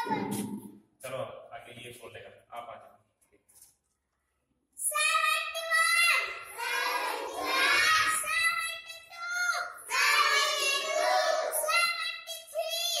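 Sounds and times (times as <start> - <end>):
young boy counting aloud: 0.0 - 0.5, 4.8 - 13.0.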